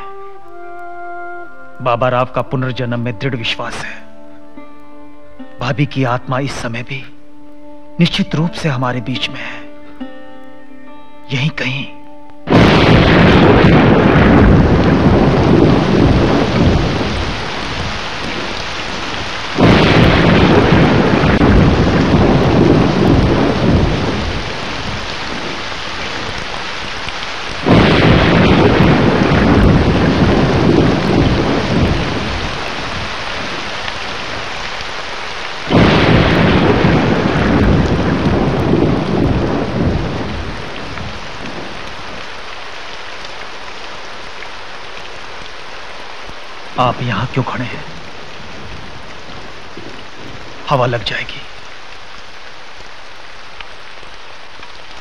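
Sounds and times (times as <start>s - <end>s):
steady rain: 0.0s - 55.0s
thunderclaps rumbling: 12.5s - 44.0s, 47.4s - 51.6s.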